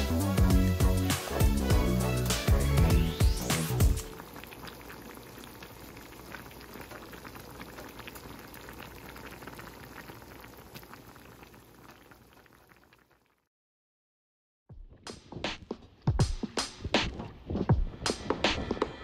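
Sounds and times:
stew bubbling in a pot: 3.9s - 13.5s.

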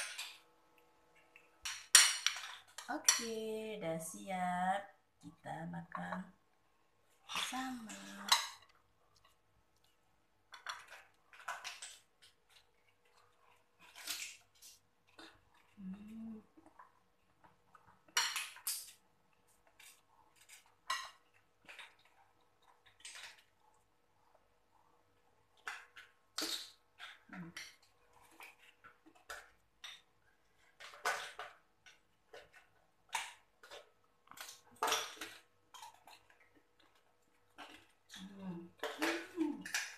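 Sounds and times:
chewing crunchy fruit: 7.1s - 39.9s.

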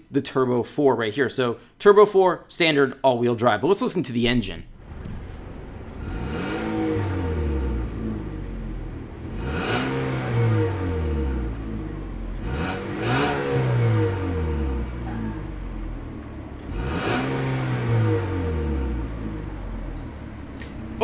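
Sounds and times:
car engine revving: 4.7s - 21.0s.

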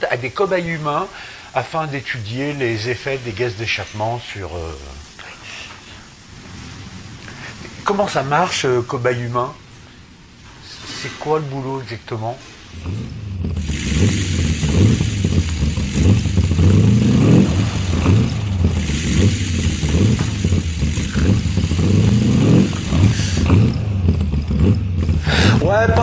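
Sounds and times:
car engine running: 12.7s - 26.0s.

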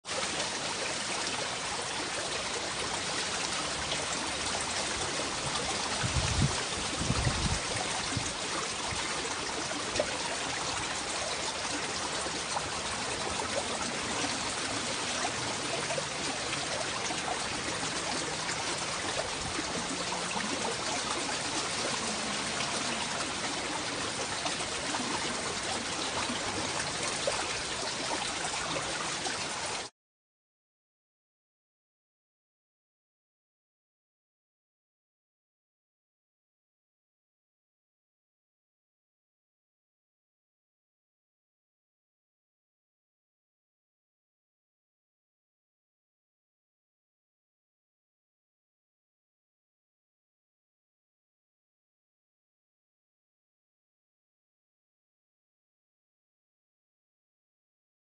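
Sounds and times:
stream trickling: 0.0s - 29.9s.

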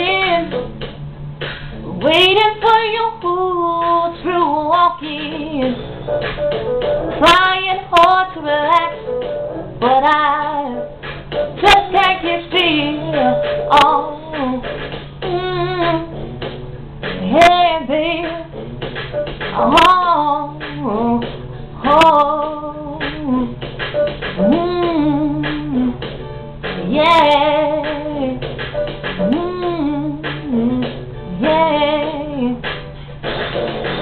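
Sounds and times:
woman singing soul phrases: 0.0s - 0.6s, 1.9s - 5.8s, 7.2s - 9.1s, 9.8s - 10.9s, 11.6s - 16.4s, 17.2s - 18.6s, 19.6s - 23.6s, 24.4s - 26.0s, 26.8s - 28.4s, 29.2s - 32.6s
steady low hum: 0.0s - 34.0s.

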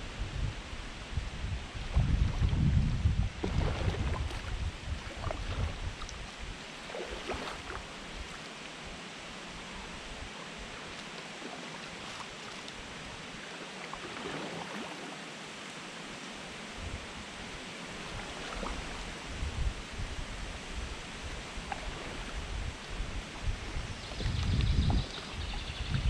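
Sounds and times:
wind rumbling on microphone: 0.0s - 11.0s, 16.7s - 26.0s
kayak paddle dipping into water: 3.4s - 8.8s, 10.7s - 15.2s, 17.9s - 19.4s, 21.2s - 26.0s.

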